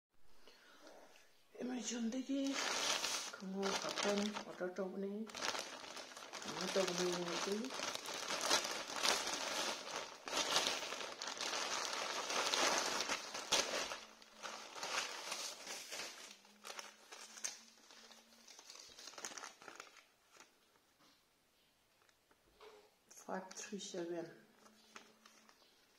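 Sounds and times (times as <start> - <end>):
plastic bag crinkling: 1.7 - 20.8.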